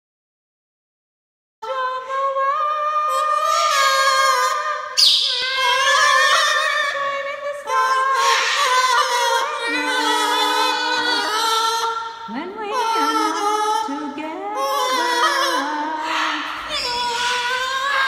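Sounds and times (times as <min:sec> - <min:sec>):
macaws singing: 0:03.6 - 0:06.9, 0:07.7 - 0:12.0, 0:12.7 - 0:18.0.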